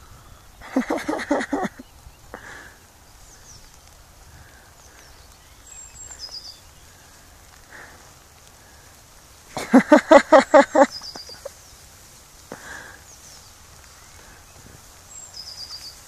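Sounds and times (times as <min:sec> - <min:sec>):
faint high bird chirps: 0:10.7 - 0:11.8, 0:13.1 - 0:16.0.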